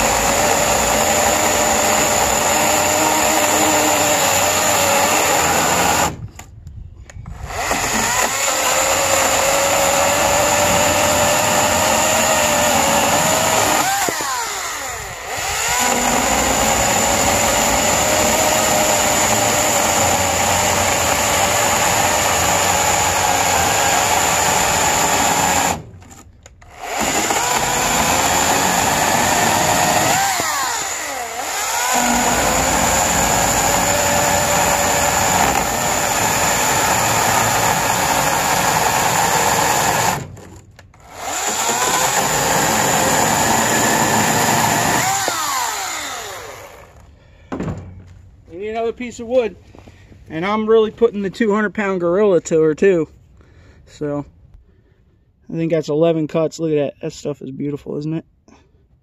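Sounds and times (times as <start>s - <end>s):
electric chainsaw cutting wood: 0.0s - 6.2s, 7.3s - 47.1s.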